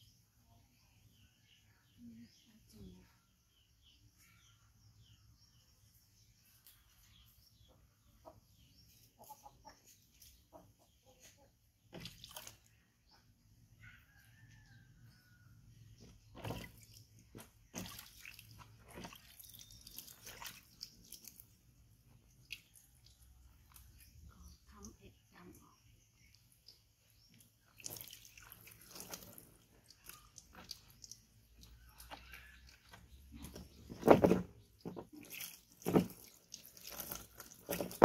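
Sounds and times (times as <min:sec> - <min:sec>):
water drips and splashes: 0:11.9 - 0:12.9, 0:15.9 - 0:25.6, 0:26.2 - 0:38.0.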